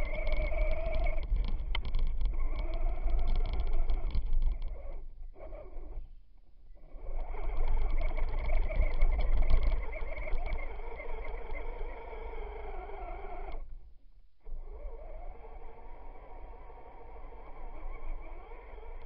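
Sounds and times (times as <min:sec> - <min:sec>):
rapid clicking: 0:00.0 - 0:04.9, 0:07.0 - 0:13.6
electric motor whine: 0:00.0 - 0:06.1, 0:06.8 - 0:13.7, 0:14.4 - 0:19.0.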